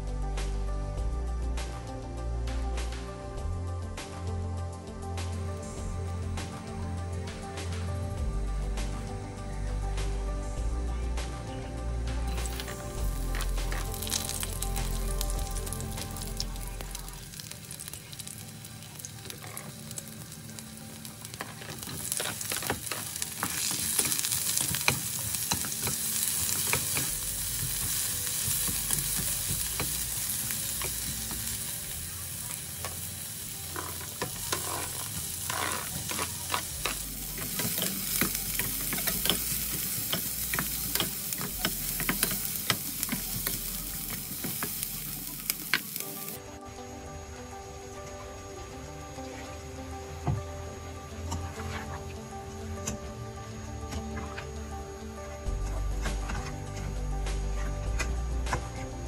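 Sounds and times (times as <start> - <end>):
food sizzling in hot oil: 12.3 - 46.5
spatula scraping a pan: 33.7 - 43.6.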